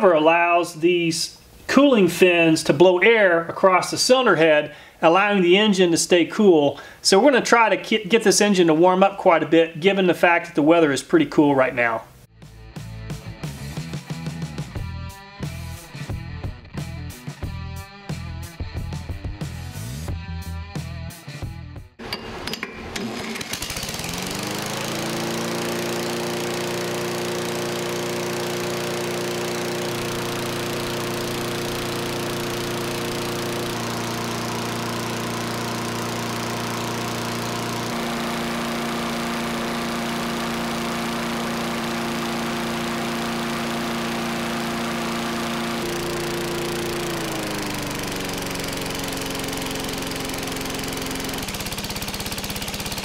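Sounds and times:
lawn mower engine running: 22.0s - 53.0s.

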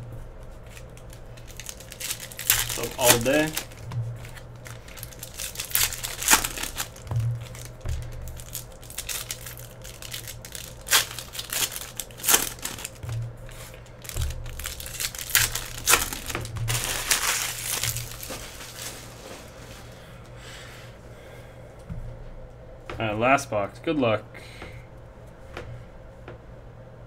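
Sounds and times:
foil wrappers crinkling and tearing: 0.0s - 20.2s.

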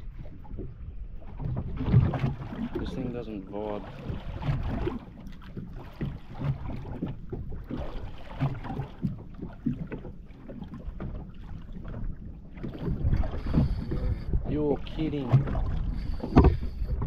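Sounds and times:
wind rumble on microphone: 0.0s - 10.0s, 10.6s - 17.0s
water slapping against boat hull: 0.0s - 17.0s.

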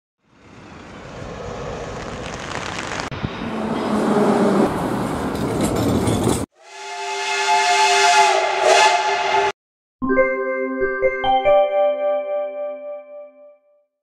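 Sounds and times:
jet engines taxiing: 0.3s - 5.9s
steam locomotive whistle: 6.6s - 9.6s.

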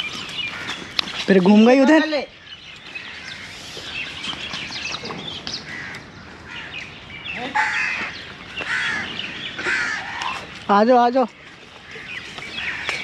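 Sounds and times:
birds chirping: 0.0s - 13.0s
rough bird calls: 0.0s - 13.0s.

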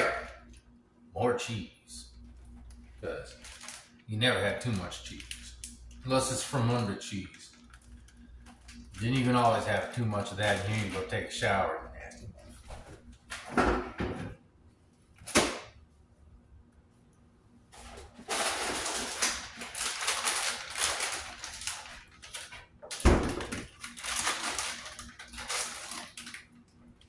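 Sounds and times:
plastic packaging crinkling: 2.7s - 4.0s, 4.6s - 6.5s, 7.5s - 11.3s, 17.8s - 26.6s
plastic bag tearing open: 3.3s - 3.8s, 10.4s - 11.1s, 18.2s - 26.4s.

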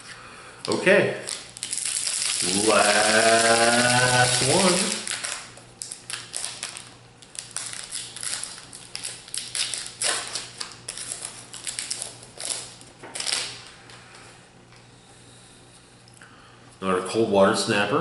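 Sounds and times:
foil wrapper crinkling and tearing: 0.6s - 13.7s.

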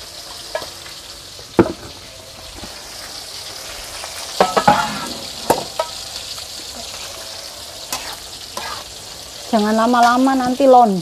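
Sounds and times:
sizzling hiss: 0.0s - 11.0s
metal ladle scraping a pot: 4.4s - 6.0s, 7.9s - 8.9s.

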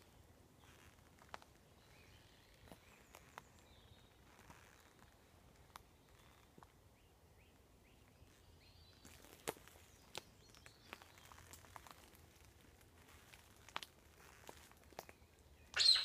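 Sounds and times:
faint bird chirps: 15.1s - 16.0s.

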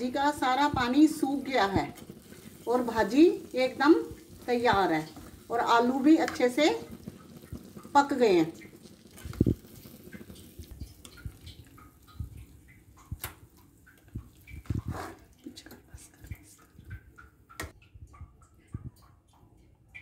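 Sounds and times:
spatula scraping a pan: 14.5s - 15.3s.

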